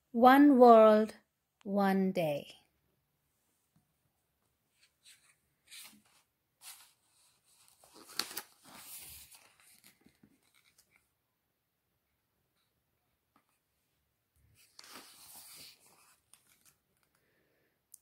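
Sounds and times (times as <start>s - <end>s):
page being turned: 4.8s - 11.1s, 14.6s - 17.2s.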